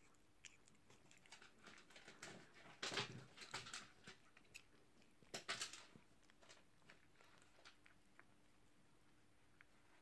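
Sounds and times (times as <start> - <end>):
cat crunching food: 0.0 - 10.0.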